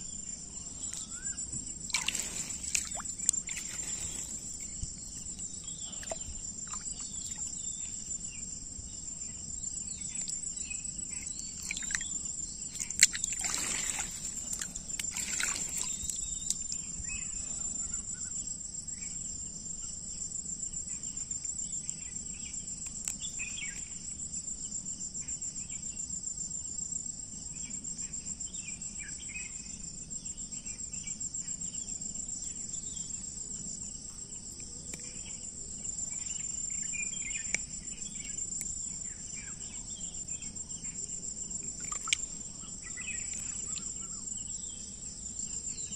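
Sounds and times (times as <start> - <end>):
insects buzzing: 0.0 - 26.2, 26.8 - 45.9
water splashing: 1.9 - 5.0, 5.9 - 7.4, 11.6 - 12.0, 12.7 - 16.3, 41.8 - 42.4.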